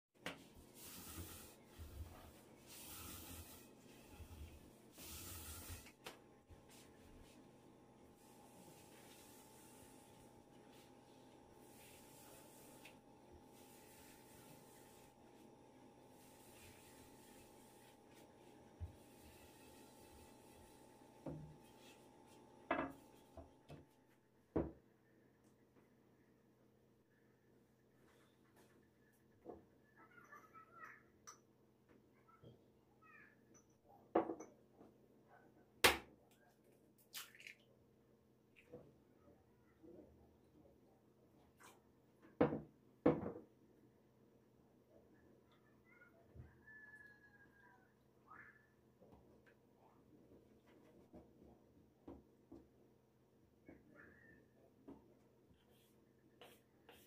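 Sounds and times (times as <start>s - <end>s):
soft rubbing strokes: 6.7s - 7.4s, 8.2s - 15.4s, 16.1s - 21.0s, 55.5s - 57.0s.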